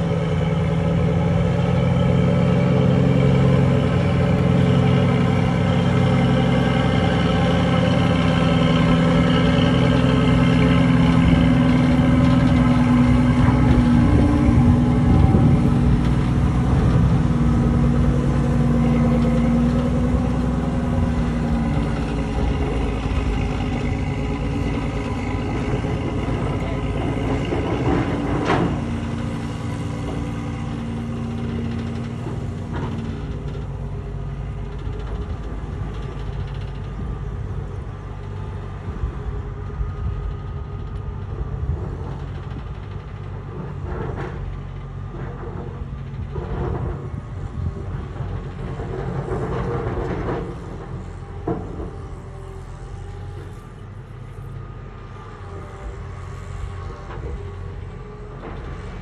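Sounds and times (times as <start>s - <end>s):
truck diesel engine droning: 0.0s - 59.0s.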